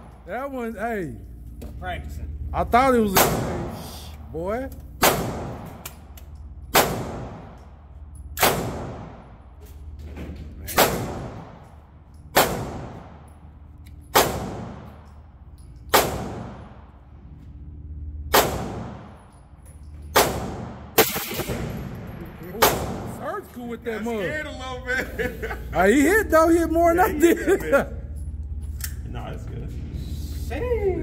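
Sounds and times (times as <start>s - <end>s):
gunshots with echo: 3.1s - 3.9s, 5.0s - 5.8s, 6.7s - 7.6s, 8.4s - 9.3s, 10.7s - 11.7s, 12.3s - 13.3s, 14.1s - 15.0s, 15.9s - 17.0s, 18.3s - 19.2s, 20.1s - 23.2s.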